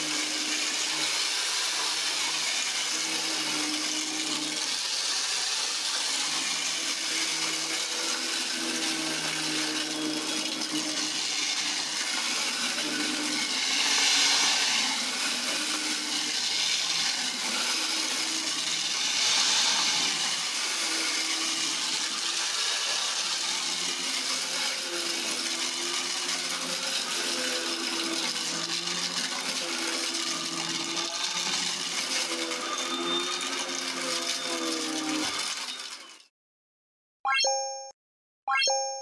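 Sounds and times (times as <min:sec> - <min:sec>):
vacuum cleaner running on carpet: 0:00.0 - 0:36.2.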